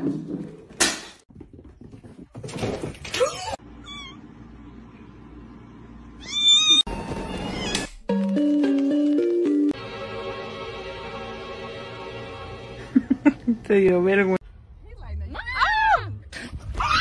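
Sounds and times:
kitten meowing: 6.2 - 6.8.

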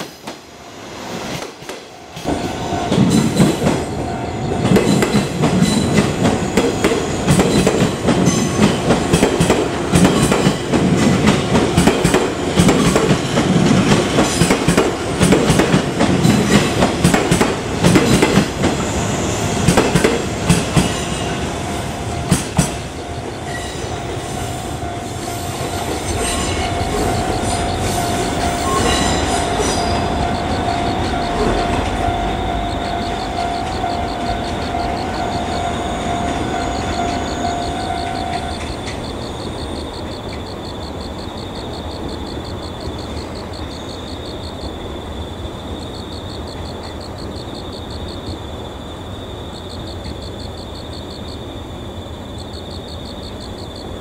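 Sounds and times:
train rumble: 0.0 - 54.0
train wheels clicking over rail joints: 1.3 - 4.0, 4.6 - 21.5, 22.2 - 24.4.

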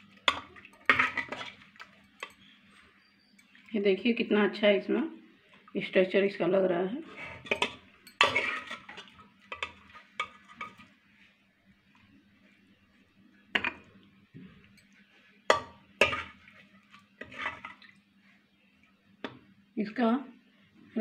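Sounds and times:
steel spoon clinking and scraping: 0.0 - 3.6, 7.1 - 10.8, 15.5 - 16.4, 17.2 - 17.8.

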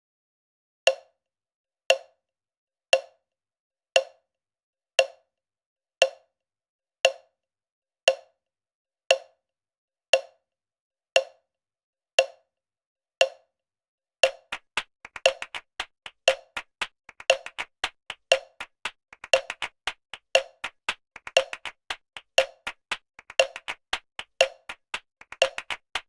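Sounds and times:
wood-block click beat: 0.9 - 1.1, 1.9 - 2.1, 3.0 - 3.2, 4.0 - 4.2, 5.0 - 5.2, 6.0 - 6.2, 7.0 - 7.3, 8.1 - 8.3, 9.1 - 9.4, 10.2 - 10.4, 11.2 - 11.4, 12.2 - 12.4, 13.2 - 13.4, 14.2 - 26.0.

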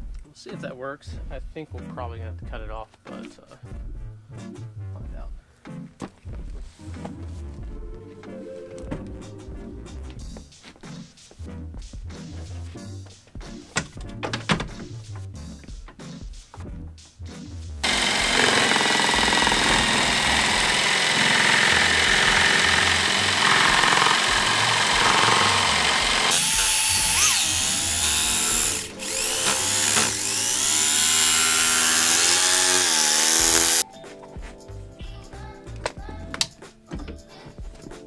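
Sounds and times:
power tool cutting plastic: 17.8 - 33.8.

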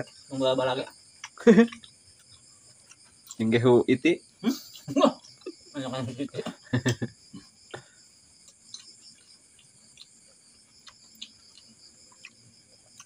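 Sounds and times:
crickets chirping: 0.0 - 13.0
chips being chewed: 1.2 - 3.4, 8.4 - 13.0.

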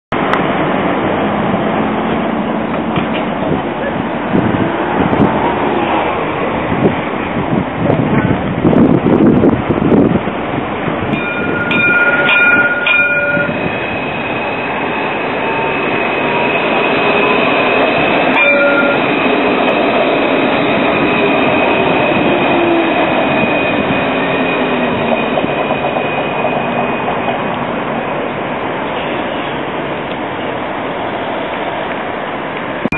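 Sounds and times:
tram rolling rumble: 0.1 - 32.9
gliding whine: 11.0 - 28.0.

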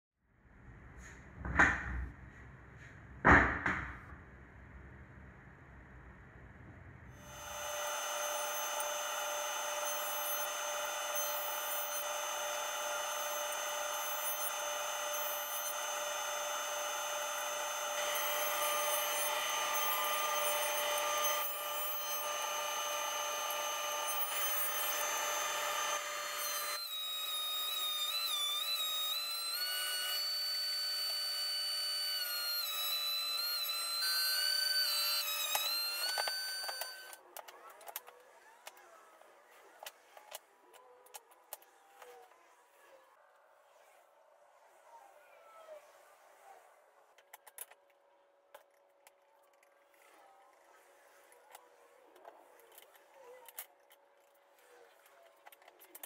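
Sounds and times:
jointer whining: 7.2 - 37.2
thickness planer motor whine: 7.2 - 40.4.

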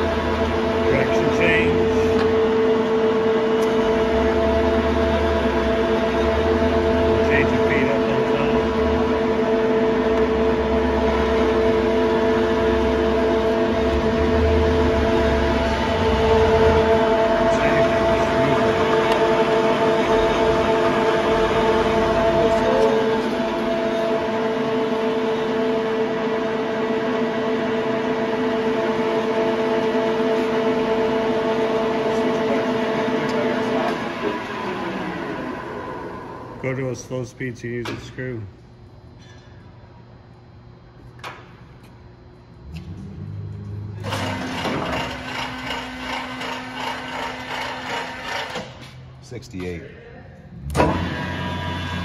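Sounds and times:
lathe gearing whine: 0.0 - 39.3, 41.8 - 49.2, 50.4 - 52.0
constant hum: 0.0 - 52.0
lathe gears clattering: 44.0 - 48.8.

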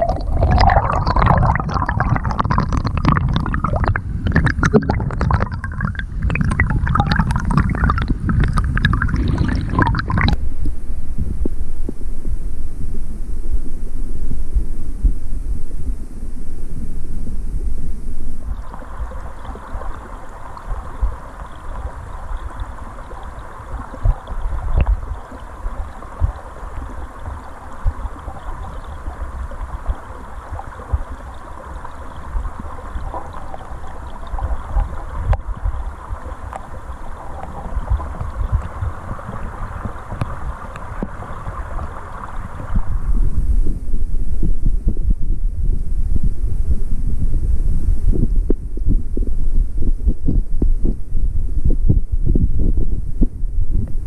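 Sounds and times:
muffled underwater rumble: 0.0 - 54.0
rushing hiss of water: 18.6 - 43.2.

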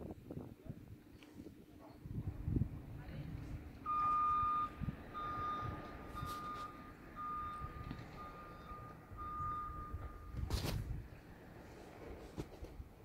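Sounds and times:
reversing alarm beeping: 3.8 - 10.5.

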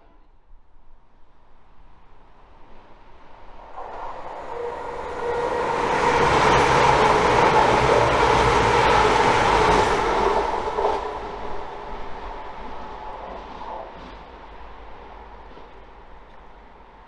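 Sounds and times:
train passing at speed: 0.0 - 17.0.

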